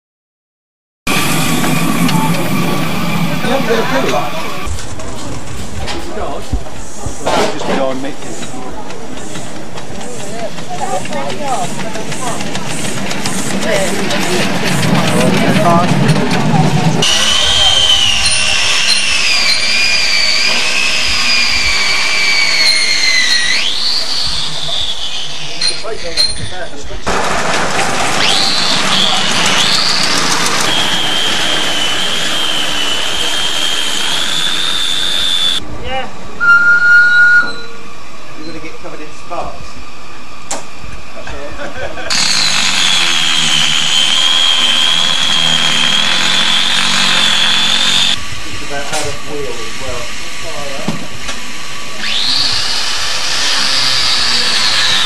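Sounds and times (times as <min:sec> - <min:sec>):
steady high tone: 0:01.1 - 0:04.7, 0:36.4 - 0:37.9
high-pitched whine: 0:01.1 - 0:04.8, 0:13.7 - 0:26.4, 0:28.2 - 0:35.7, 0:36.3 - 0:39.8, 0:42.1 - 0:52.9
shrill steam hiss: 0:28.2 - 0:35.6.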